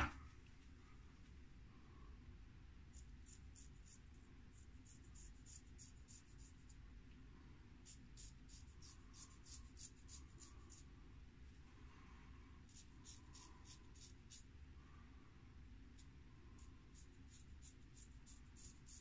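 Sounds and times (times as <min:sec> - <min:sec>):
razor scraping beard stubble: 0:02.9 - 0:06.8, 0:07.8 - 0:10.9, 0:12.7 - 0:14.5, 0:15.9 - 0:19.0.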